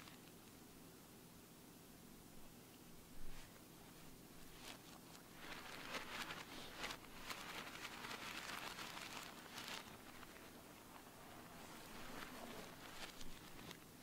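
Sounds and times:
plastic packet crinkling: 0:04.4 - 0:14.0.

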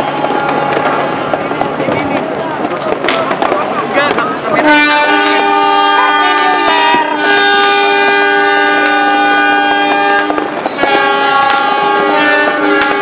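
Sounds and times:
firework bangs: 0:00.0 - 0:13.0
locomotive horns chord: 0:04.6 - 0:13.0.

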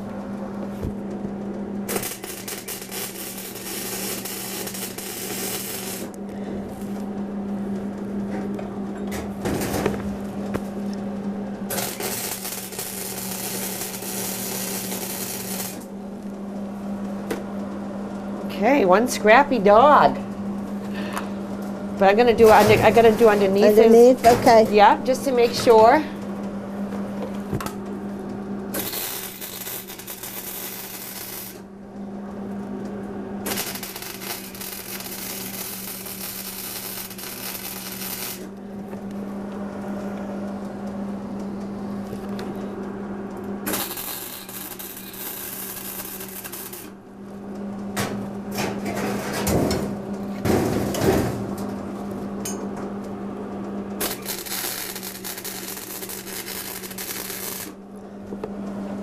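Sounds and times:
steady low hum: 0:00.0 - 0:59.0
welding arc hiss: 0:01.9 - 0:07.0, 0:11.7 - 0:15.9, 0:28.7 - 0:31.6, 0:33.4 - 0:38.5, 0:43.7 - 0:47.0, 0:54.0 - 0:57.8.

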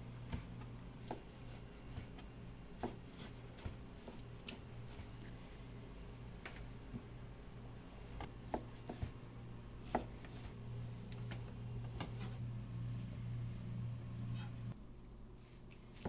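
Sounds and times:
low hum: 0:10.5 - 0:15.2.

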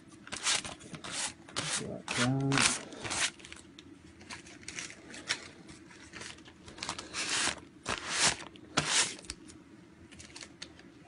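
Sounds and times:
paper rustling and scraping: 0:00.3 - 0:03.6, 0:04.2 - 0:09.4.

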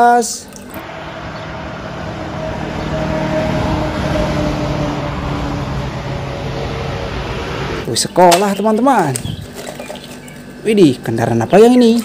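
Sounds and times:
traffic noise: 0:00.4 - 0:10.6
bus driving past: 0:00.8 - 0:07.9.

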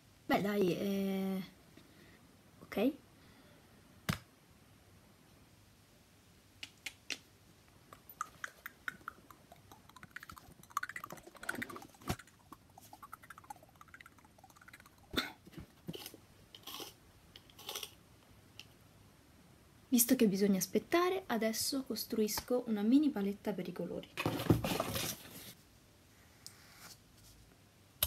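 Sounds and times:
rustling: 0:24.2 - 0:25.7.

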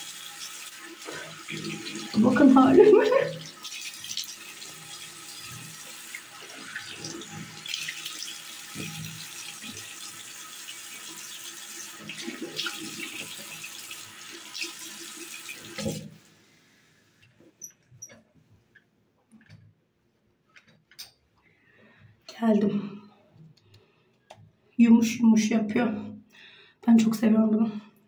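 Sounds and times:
tap running into sink: 0:06.8 - 0:09.9, 0:15.6 - 0:16.2.

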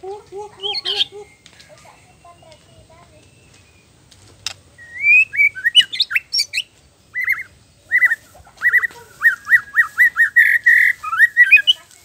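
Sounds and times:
bird singing looping whistles: 0:00.5 - 0:03.9, 0:04.8 - 0:11.9.

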